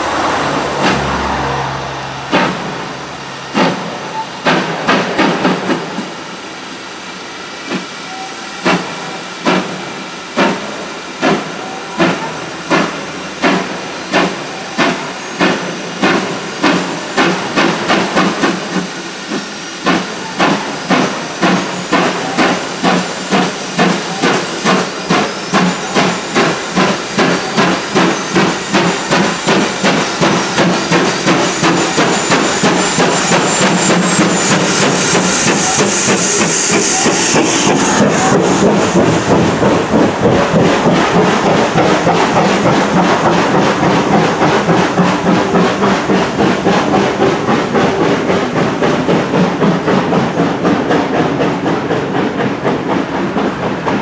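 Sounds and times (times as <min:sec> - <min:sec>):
steam hissing: 0:00.0 - 0:54.0
steam locomotive chuffing: 0:00.0 - 0:54.0.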